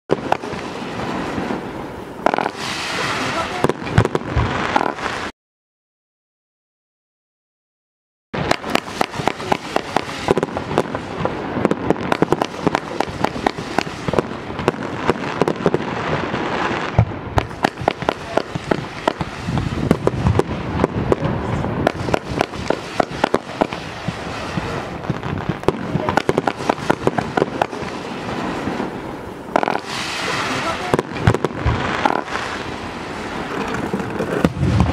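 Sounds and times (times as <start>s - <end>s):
steady hiss: 0.3s - 3.6s, 21.4s - 34.4s
fireworks small pops: 2.2s - 2.6s, 29.5s - 30.0s, 33.5s - 34.9s.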